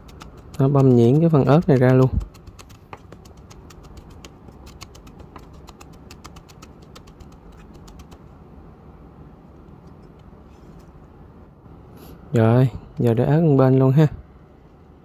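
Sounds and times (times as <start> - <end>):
knife chopping on wooden board: 0.1 - 6.0.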